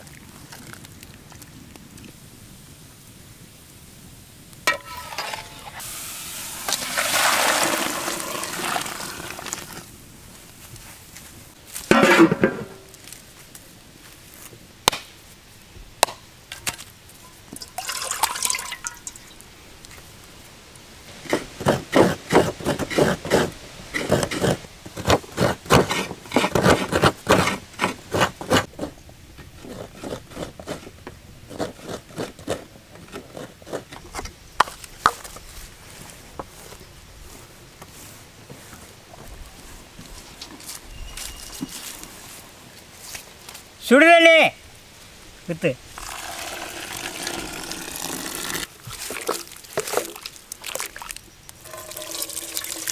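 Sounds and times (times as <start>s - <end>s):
coconut scraping: 4.7s - 9.9s, 21.2s - 35.2s, 46.0s - 52.9s.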